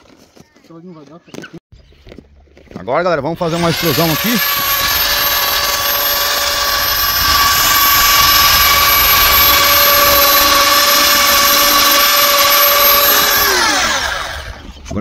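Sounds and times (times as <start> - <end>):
extrusion welder motor whine: 3.3 - 14.8.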